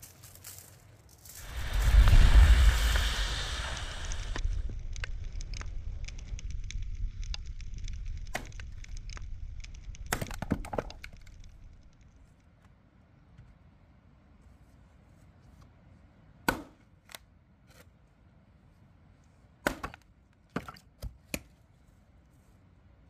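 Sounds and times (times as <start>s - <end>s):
loud rushing noise: 1.4s - 10.1s.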